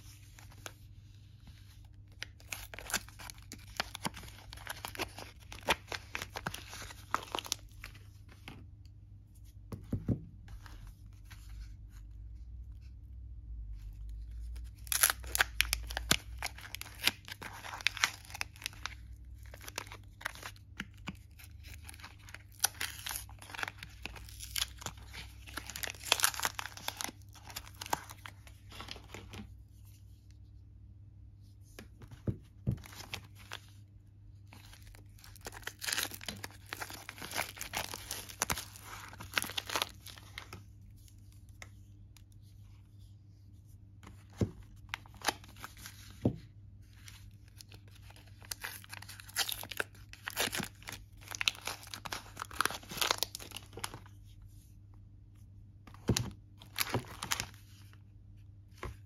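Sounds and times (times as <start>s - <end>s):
paper wrappers tearing and crinkling: 14.8s - 20.6s, 21.3s - 29.3s, 34.6s - 40.5s, 47.6s - 54.0s.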